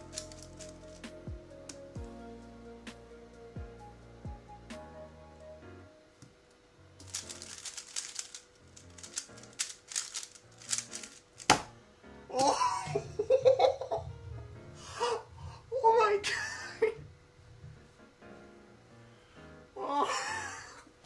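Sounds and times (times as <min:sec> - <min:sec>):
puzzle cube clicking rapidly: 0:00.0 - 0:01.0, 0:07.0 - 0:11.6
background music: 0:00.0 - 0:20.7.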